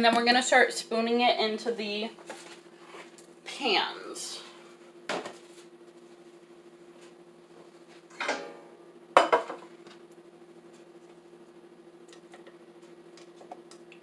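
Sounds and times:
faint steady hum: 0.0s - 14.0s
metal pans clanking: 8.1s - 9.6s.

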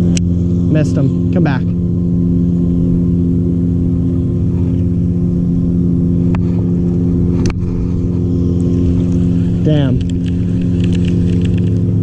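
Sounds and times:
boat motor running: 0.0s - 12.0s.

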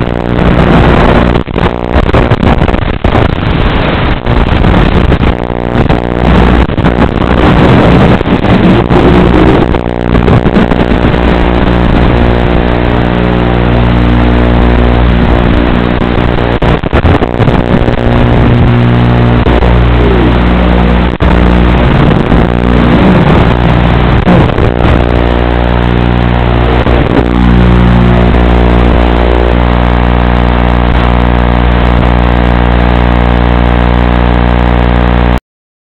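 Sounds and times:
quadcopter motors buzzing: 17.9s - 29.6s.

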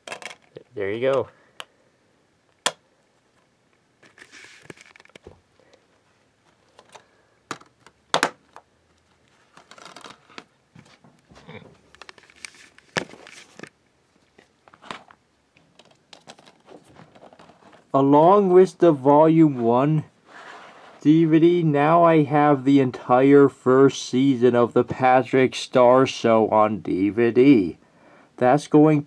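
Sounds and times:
plastic case clicks and snaps: 2.6s - 2.8s
rustling and scraping: 3.4s - 7.9s, 9.0s - 18.0s, 19.4s - 21.1s.

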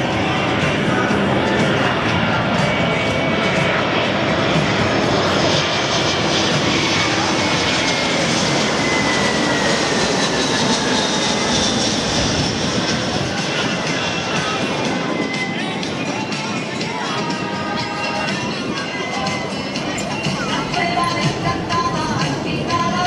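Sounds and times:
jet airliner flying overhead: 0.0s - 23.0s.

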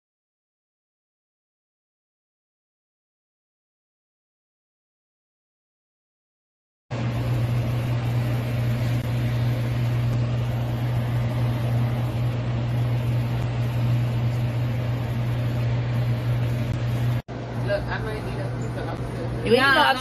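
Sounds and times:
machine hum with rushing noise: 6.9s - 20.0s.

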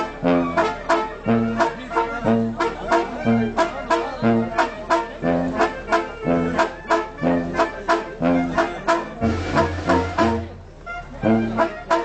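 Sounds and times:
brass band playing: 0.0s - 12.0s
drum and cymbal beat: 9.2s - 10.5s.

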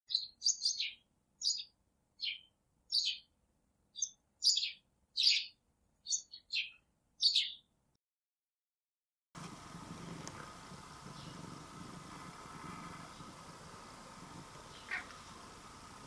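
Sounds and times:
small bird chirping: 0.1s - 3.3s, 3.9s - 7.7s, 11.1s - 11.5s, 14.3s - 15.5s.

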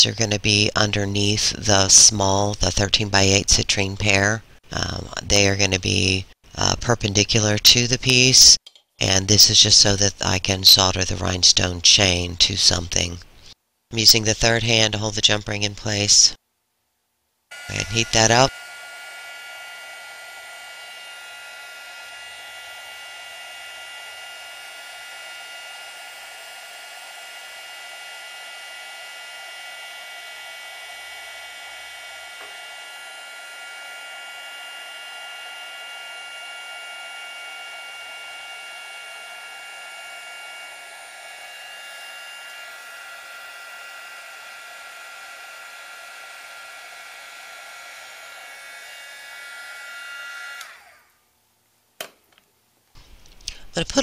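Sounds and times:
heat gun blowing hiss and whine: 17.5s - 51.2s.

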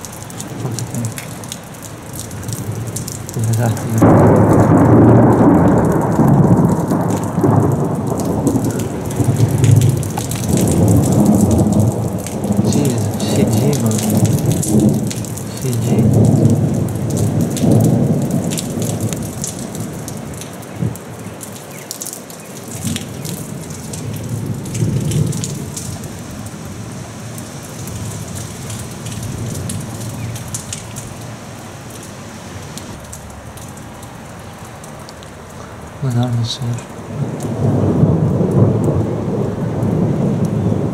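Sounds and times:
rolling thunder: 0.0s - 21.0s, 22.7s - 26.9s, 36.9s - 40.9s
steady rain: 0.0s - 40.9s.

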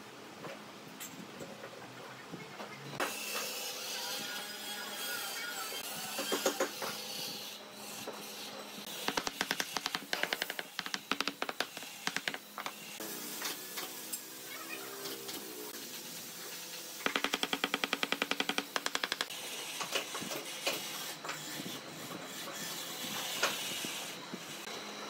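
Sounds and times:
low workshop noise: 0.0s - 25.0s
rapid knocks on wood: 17.0s - 19.3s.

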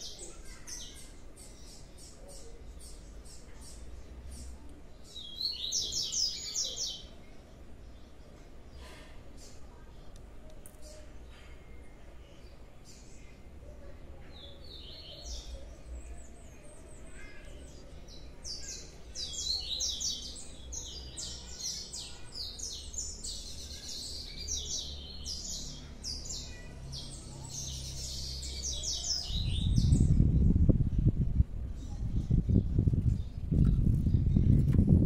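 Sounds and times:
songbird chirping and trilling: 0.0s - 34.5s
loud low rumbling noise: 29.4s - 35.0s.

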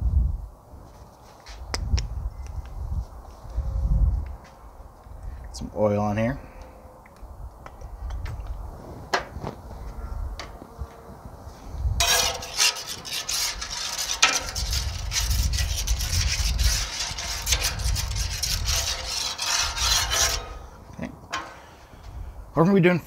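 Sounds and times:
metal spatula scraping griddle: 12.0s - 21.8s.

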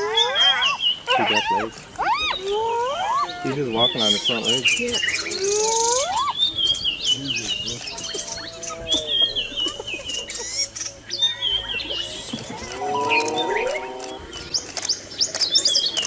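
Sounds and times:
hyena calling: 0.0s - 4.5s, 11.3s - 14.6s
birds chirping: 0.0s - 16.0s.

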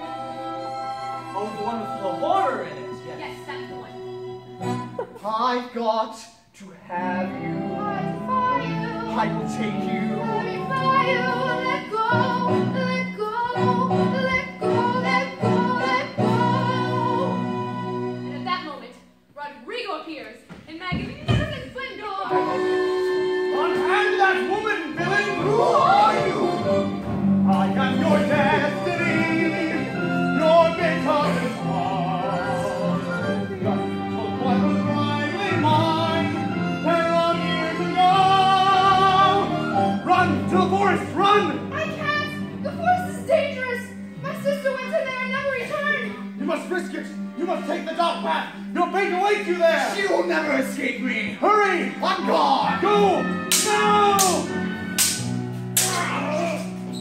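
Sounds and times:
operatic singing: 0.0s - 5.1s, 6.8s - 18.4s, 21.7s - 44.0s, 48.8s - 56.9s
instrumental accompaniment: 20.9s - 57.0s.

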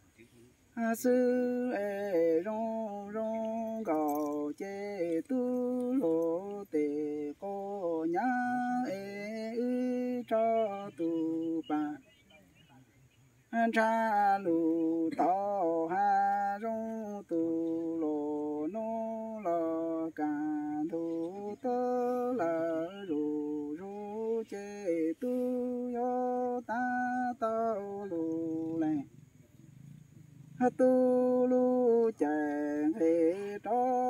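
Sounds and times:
person chanting: 13.6s - 29.1s, 30.6s - 34.0s.

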